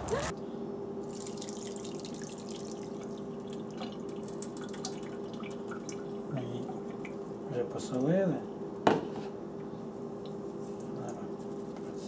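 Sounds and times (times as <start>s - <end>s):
faint steady hum: 0.0s - 12.0s
liquid dripping through strainer: 1.1s - 7.3s.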